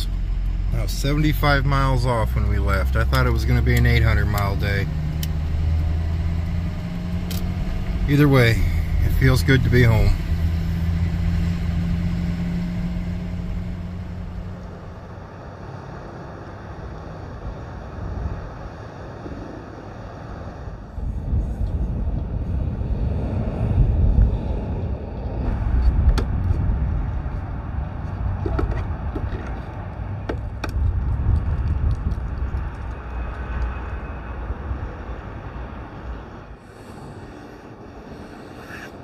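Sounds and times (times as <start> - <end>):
road noise inside cab: 0.0 - 39.0
truck engine hum: 0.0 - 39.0
wind rumble on microphone: 0.0 - 39.0
sharp clicks: 3.7 - 6.6, 7.2 - 7.6.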